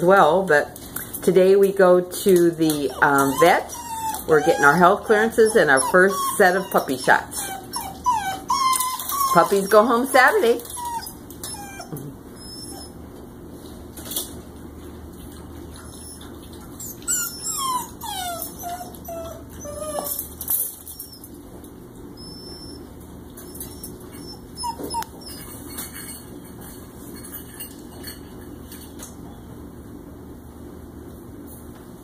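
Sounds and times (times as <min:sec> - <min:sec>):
puppies whimpering and whining: 0:02.6 - 0:13.3, 0:15.6 - 0:26.3.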